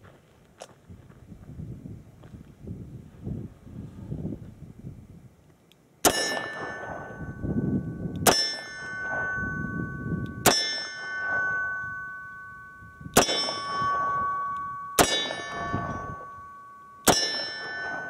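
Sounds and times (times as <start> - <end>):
steel target ringing: 6.0 - 18.0.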